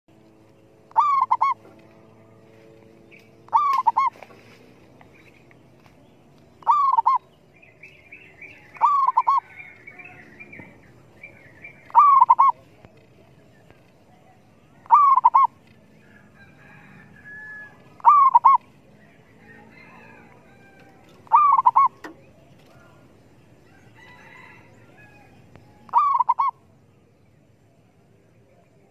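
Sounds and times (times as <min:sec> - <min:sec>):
dove cooing: 0:00.9 - 0:02.2, 0:03.4 - 0:04.6, 0:06.6 - 0:07.3, 0:08.2 - 0:10.8, 0:11.6 - 0:13.4, 0:14.0 - 0:23.1, 0:24.3 - 0:26.6.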